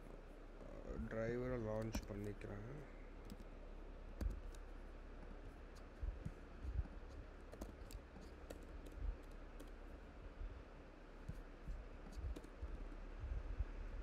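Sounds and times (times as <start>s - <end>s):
keyboard and mouse clicking: 5.7s - 9.9s, 12.1s - 12.6s.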